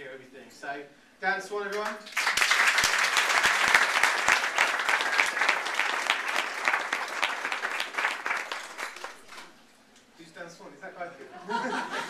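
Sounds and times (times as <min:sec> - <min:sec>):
crowd applauding: 0:02.1 - 0:09.5.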